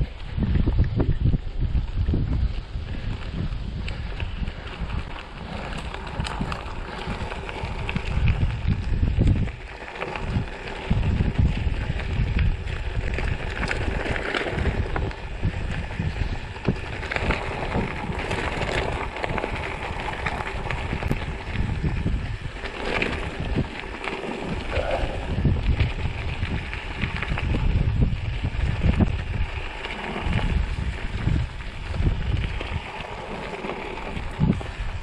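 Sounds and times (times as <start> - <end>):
wind buffeting microphone: 0.0 - 35.0
tyre and riding hiss: 24.2 - 25.6.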